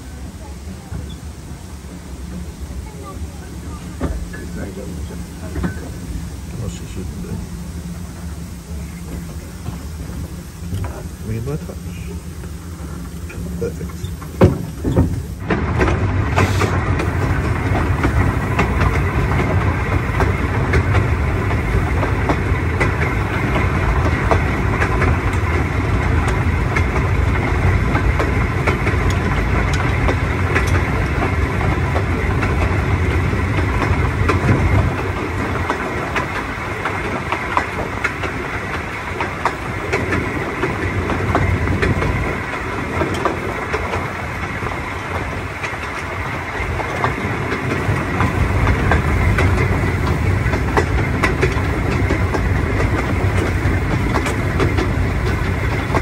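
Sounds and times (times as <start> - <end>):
locomotive wheels clattering on rails: 0.0 - 56.0.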